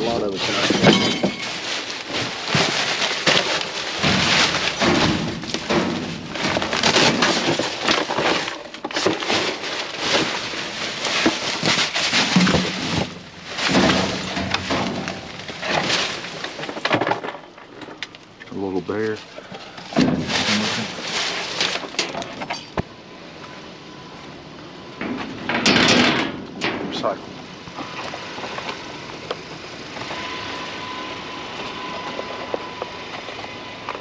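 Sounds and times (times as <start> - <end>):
plastic bags crinkling: 0.0 - 17.8, 18.9 - 22.4.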